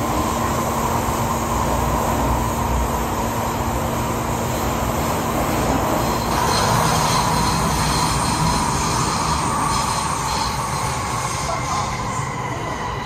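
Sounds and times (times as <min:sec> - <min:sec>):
wheels rumbling on rail: 0:00.0 - 0:13.0
high wheel squeal: 0:06.0 - 0:13.0.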